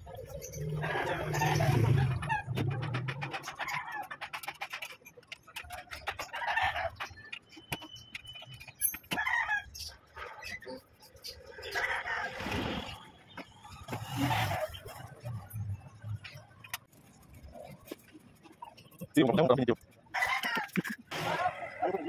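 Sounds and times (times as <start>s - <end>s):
rooster crowing and clucking: 20.1s - 21.8s.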